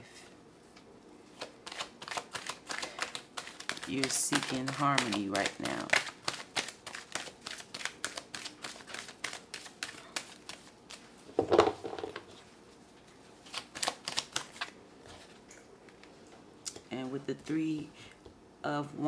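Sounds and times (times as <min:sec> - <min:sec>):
cards shuffled by hand: 0:01.4 - 0:11.0, 0:13.4 - 0:15.3.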